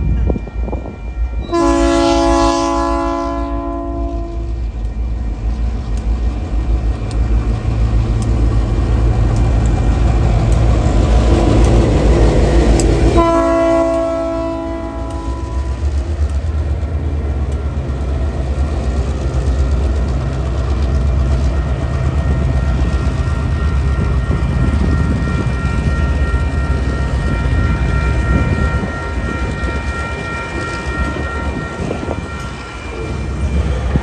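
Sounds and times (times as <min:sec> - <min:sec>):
locomotive engine rumbling: 0:00.0 - 0:34.0
train wheels on rails: 0:00.0 - 0:34.0
train horn: 0:01.4 - 0:04.6, 0:13.1 - 0:16.0.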